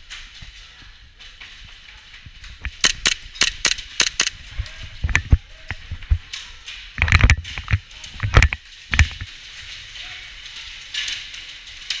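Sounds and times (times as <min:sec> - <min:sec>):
airsoft gunshots: 0:02.8 - 0:04.3.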